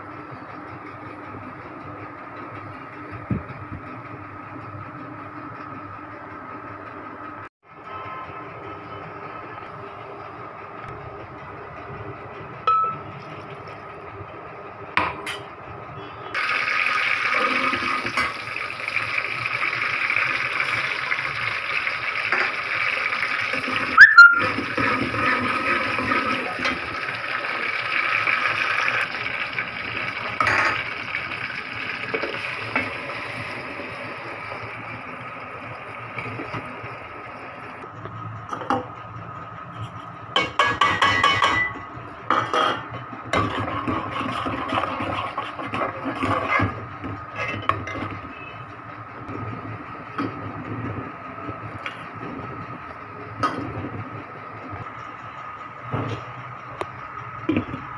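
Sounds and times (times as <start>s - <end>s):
hot oil sizzling in a pot: 16.4s - 37.6s.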